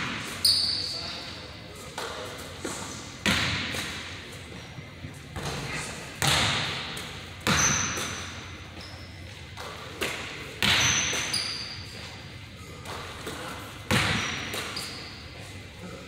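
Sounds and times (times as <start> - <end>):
basketballs bouncing on wooden floor: 0.0 - 0.4, 3.2 - 4.2, 6.2 - 11.6, 12.9 - 15.0
sneakers squeaking on court: 0.0 - 2.2, 3.2 - 15.7.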